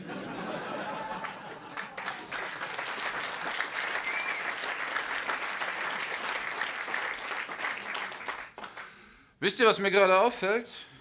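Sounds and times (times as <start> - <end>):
audience applauding: 0.5 - 9.0.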